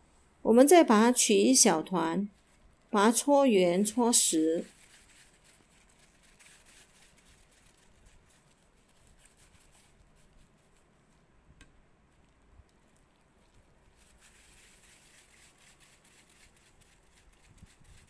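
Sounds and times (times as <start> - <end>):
gloved hands kneading dough: 2.2 - 18.0.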